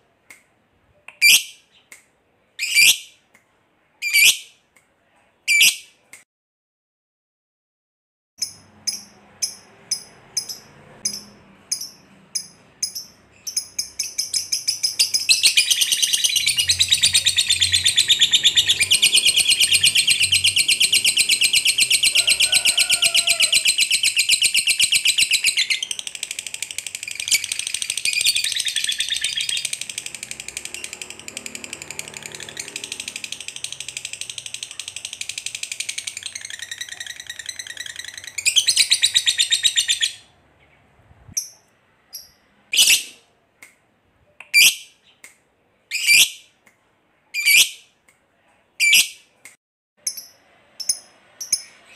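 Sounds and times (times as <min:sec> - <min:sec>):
bird chirping: 0:02.6 - 0:03.2, 0:08.4 - 0:43.2, 0:50.0 - 0:51.9.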